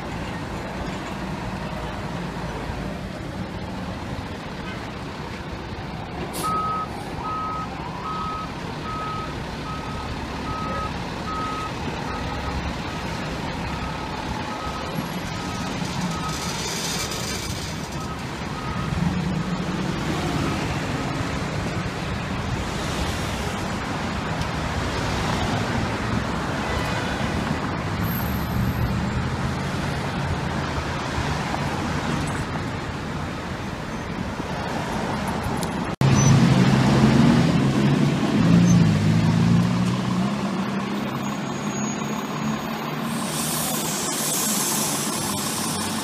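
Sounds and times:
fire engine diesel droning: 0.0 - 34.5, 35.5 - 46.0
cars driving past: 5.7 - 46.0
faint reversing beeper: 6.4 - 13.0.

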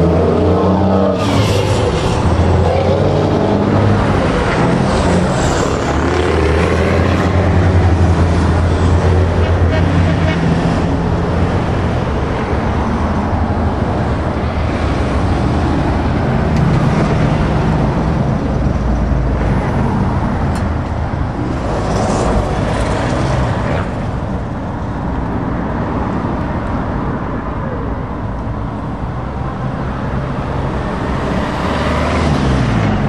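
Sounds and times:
diesel trucks passing: 0.0 - 33.0.

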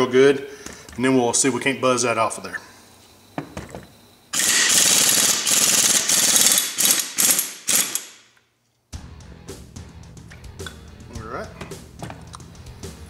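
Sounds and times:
impact wrench hammering: 4.4 - 8.2.

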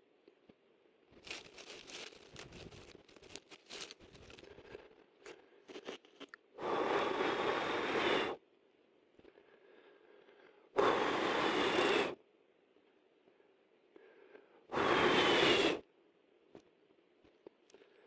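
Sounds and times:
leaves and twigs crackling: 1.1 - 4.8
breath blown into embers: 10.8 - 12.2, 14.7 - 15.8.

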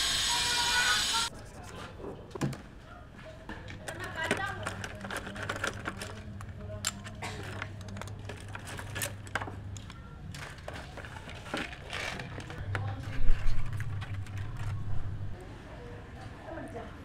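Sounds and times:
tools clattering in plastic tray: 3.7 - 9.6.

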